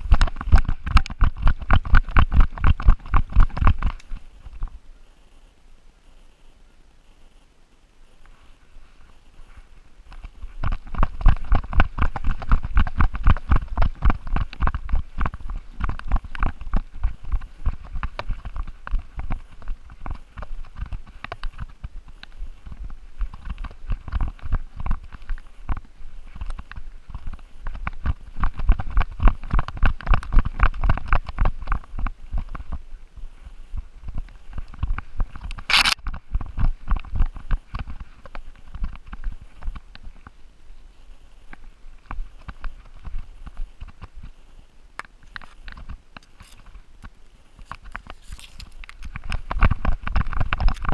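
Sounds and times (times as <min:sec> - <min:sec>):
thumps of dog running: 0:00.0 - 0:04.8, 0:10.1 - 0:32.8, 0:47.7 - 0:50.9.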